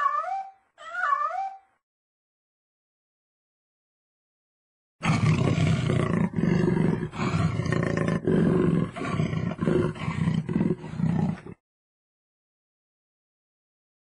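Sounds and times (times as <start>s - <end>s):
lion roaring: 5.0s - 11.6s.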